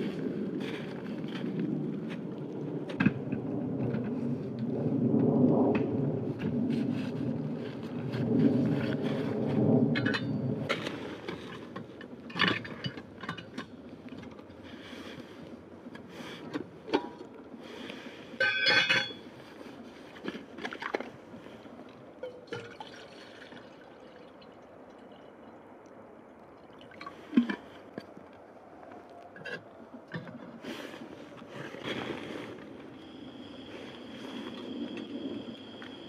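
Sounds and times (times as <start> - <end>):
water pouring into metal pot: 22.2 - 24.6.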